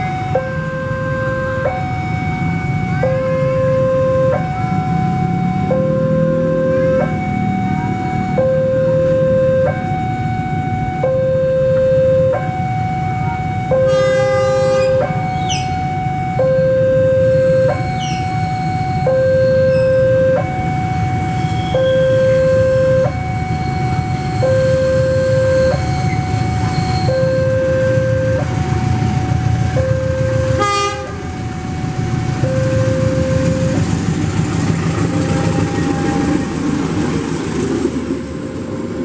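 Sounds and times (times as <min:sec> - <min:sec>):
level crossing two-tone alarm: 0:00.0 - 0:33.8
passing train rumble: 0:00.0 - 0:39.0
train horn blast: 0:02.9 - 0:04.4, 0:13.8 - 0:15.5, 0:29.9 - 0:31.4, 0:35.0 - 0:36.6.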